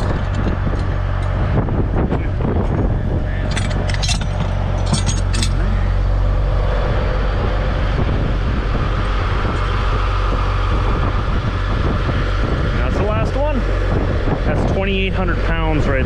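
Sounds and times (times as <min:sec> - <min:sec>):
diesel engine running: 0:00.0 - 0:16.0
hook and chain clinking: 0:03.4 - 0:05.8.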